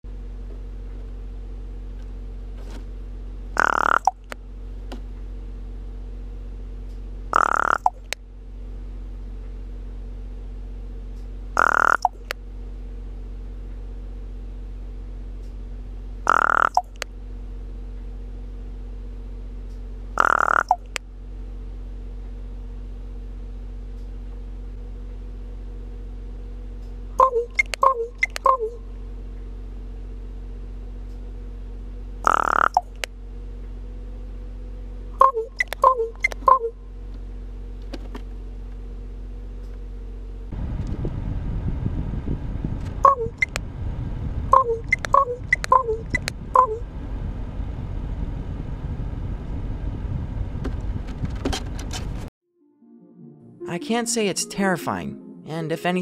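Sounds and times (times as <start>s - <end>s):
raven rasping call: 3.6s - 4.1s, 7.3s - 8.0s, 11.6s - 12.2s, 16.2s - 16.9s, 20.2s - 20.9s, 32.2s - 32.8s
raven clicks and calls: 3.6s - 4.2s, 7.4s - 8.1s, 11.6s - 12.3s, 16.3s - 17.0s, 20.2s - 21.0s, 32.3s - 33.1s
truck engine hum: 26.2s - 52.3s
sharp clicks: 27.6s - 28.6s, 32.3s - 33.1s, 35.6s - 36.6s, 43.4s - 43.6s, 44.8s - 46.4s
low rumble: 40.5s - 51.4s.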